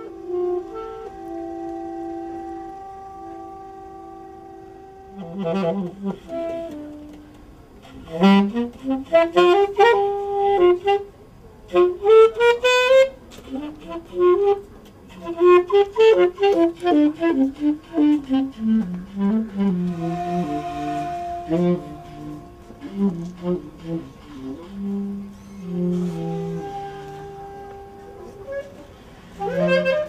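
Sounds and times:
saxophone solo: 0.0s - 30.0s.

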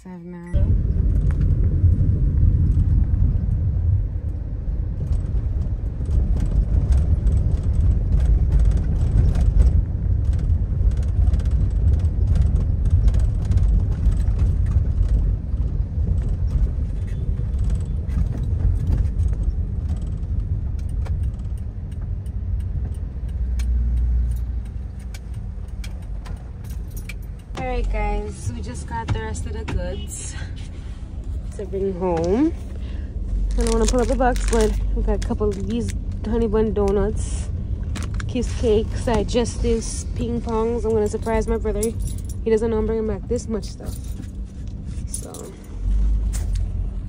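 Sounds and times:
car engine and road noise: 0.0s - 47.0s
small clicks and rattles: 5.0s - 27.9s.

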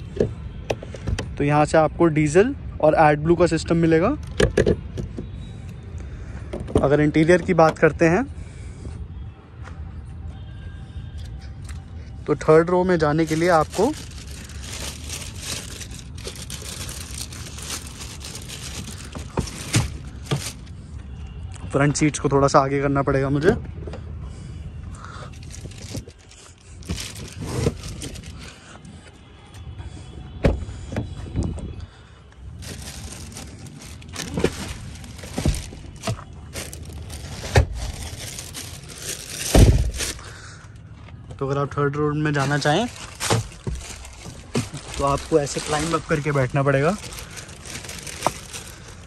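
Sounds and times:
plastic seat covers rustling: 13.0s - 20.7s, 25.4s - 28.5s, 32.6s - 40.3s, 42.3s - 49.0s
plastic wrap crinkling: 13.0s - 20.7s, 25.3s - 28.5s, 32.6s - 40.4s, 42.3s - 49.0s.

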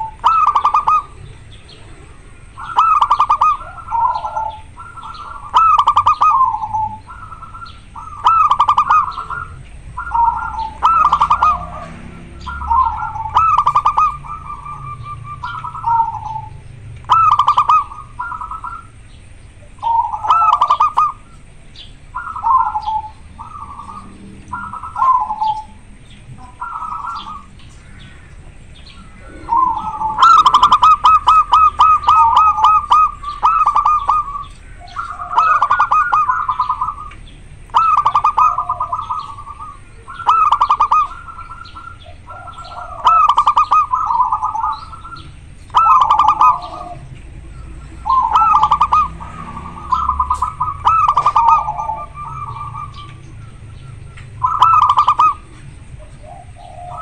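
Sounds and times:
dove cooing: 0.0s - 57.0s
rapid staccato bird notes: 29.1s - 34.4s.

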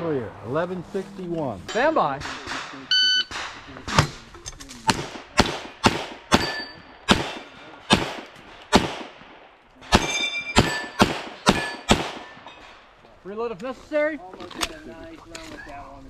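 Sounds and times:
pistol shots: 4.9s - 12.4s
steel plates ringing: 6.3s - 7.9s, 9.9s - 12.8s.

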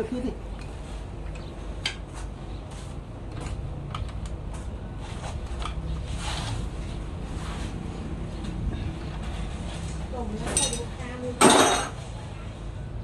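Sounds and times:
steady low hum: 0.0s - 13.0s
metal clinks: 10.5s - 11.9s.

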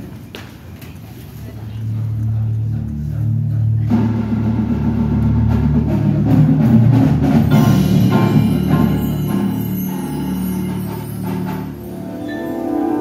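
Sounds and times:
marching band chords: 1.8s - 13.0s
drum and mallet percussion hits: 2.8s - 13.0s.

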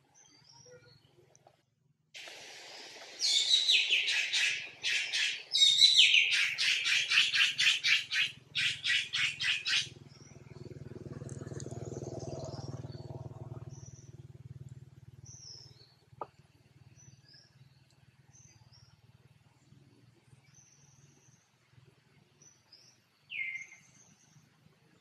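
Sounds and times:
low hum: 9.9s - 22.1s.

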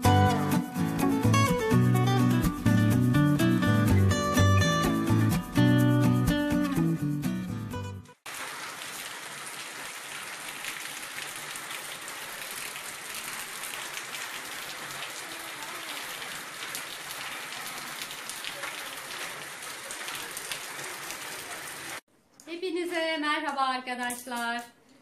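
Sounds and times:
heavy rain on street: 8.3s - 22.0s.

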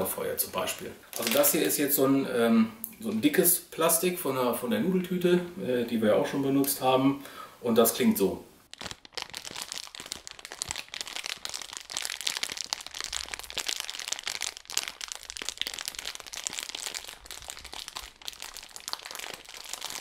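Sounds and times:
plastic bag crumpling: 1.1s - 1.9s, 8.6s - 20.0s.

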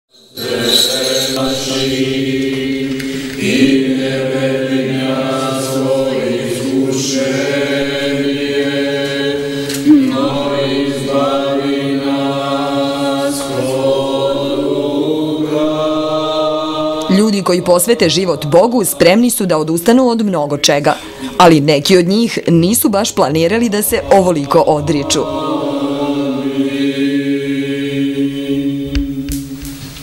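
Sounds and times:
choir chanting slow melody: 0.2s - 20.0s, 23.5s - 30.0s
low drone note: 9.8s - 11.8s.

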